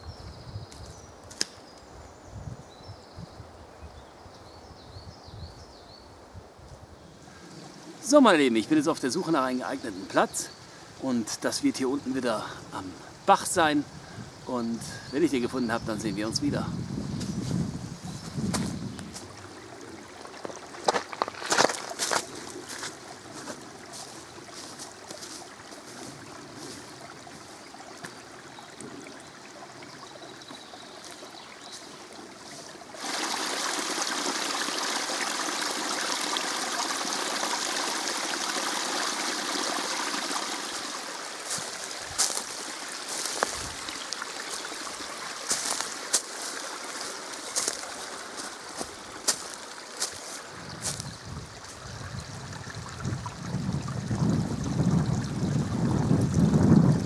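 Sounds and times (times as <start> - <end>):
brook babbling over rocks: 7.2 - 17.0, 18.1 - 57.0
water spilling down cascade: 18.5 - 57.0.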